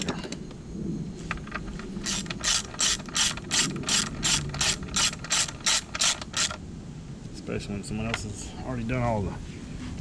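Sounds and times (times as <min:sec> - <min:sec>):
ratchet wrench pawl clicking: 0:02.0 - 0:06.6.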